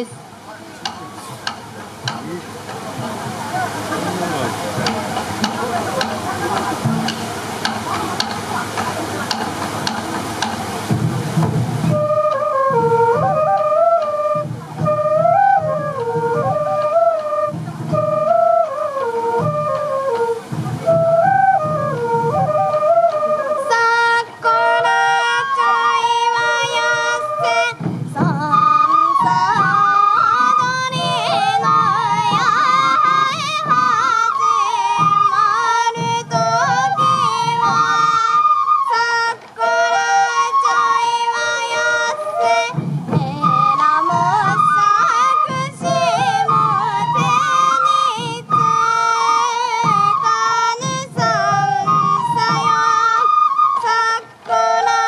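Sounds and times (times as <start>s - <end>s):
bamboo flute melody: 0.0s - 55.0s
taiko drum beats: 0.0s - 55.0s
person singing folk song: 23.6s - 55.0s.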